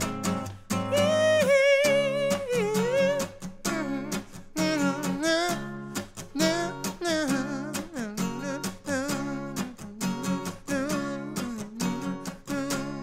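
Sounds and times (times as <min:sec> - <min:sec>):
acoustic guitar strumming: 0:00.0 - 0:13.0
man singing: 0:00.0 - 0:13.0.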